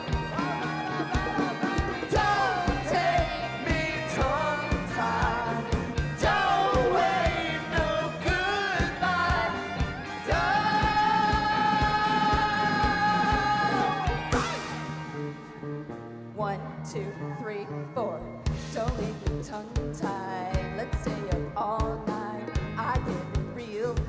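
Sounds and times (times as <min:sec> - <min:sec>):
person singing: 0:00.0 - 0:14.5
live rock band playing: 0:00.0 - 0:16.2, 0:18.4 - 0:24.0.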